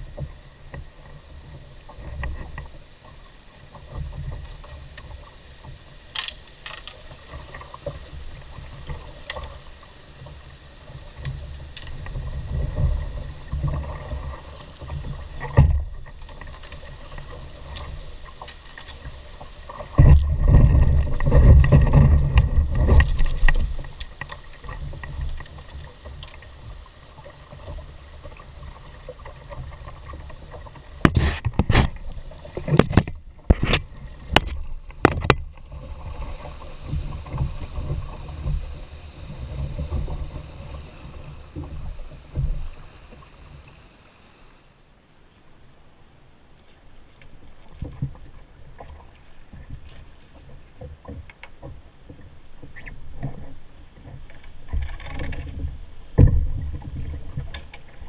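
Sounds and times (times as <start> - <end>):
creek water rushing: 12.1 - 44.8.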